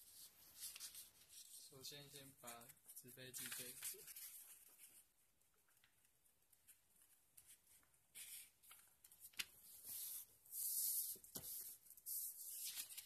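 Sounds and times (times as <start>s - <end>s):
paper rustling and sliding: 8.1s - 13.0s.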